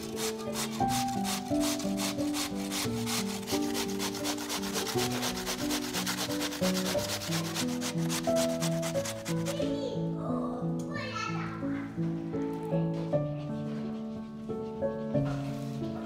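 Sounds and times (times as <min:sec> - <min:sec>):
potato rasping on a grater: 0:00.0 - 0:09.8.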